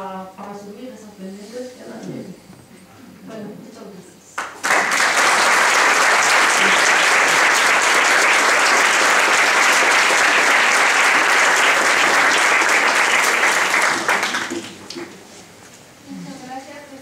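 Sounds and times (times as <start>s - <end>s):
audience applauding: 4.4s - 15.2s.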